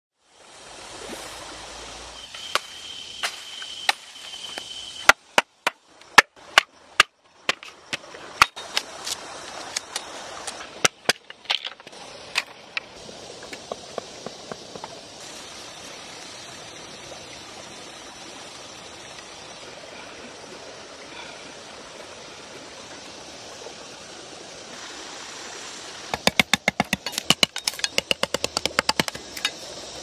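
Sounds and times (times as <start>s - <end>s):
steady background hiss: 0.2s - 30.0s
bamboo cracking and splitting: 26.1s - 29.6s.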